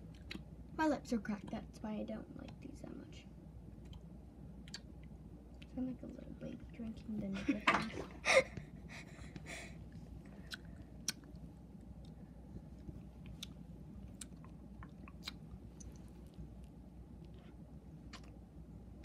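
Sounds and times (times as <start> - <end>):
lip smacks: 3.8 - 5.7, 10.3 - 12.2, 12.8 - 18.4
chewing: 10.4 - 12.2, 12.8 - 18.4.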